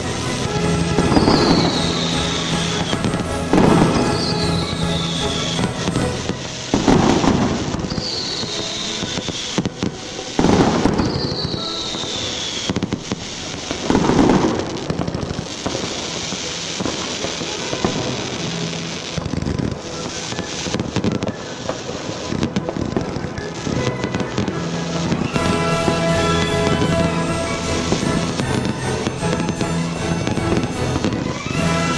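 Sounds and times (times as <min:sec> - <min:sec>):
background music: 0:00.0 - 0:09.1, 0:21.4 - 0:31.9
falling firework whistles: 0:00.0 - 0:31.9
firework bangs: 0:00.0 - 0:31.9
firework crackling: 0:00.0 - 0:31.9.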